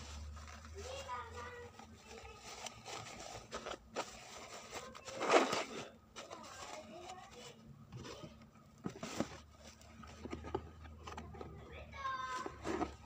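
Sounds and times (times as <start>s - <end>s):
plastic bag crinkling: 0.0s - 7.5s.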